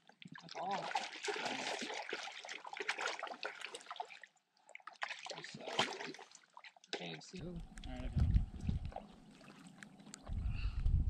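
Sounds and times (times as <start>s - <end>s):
water splashing and sloshing: 0.0s - 10.4s
sharp splash or knock: 5.2s - 6.2s.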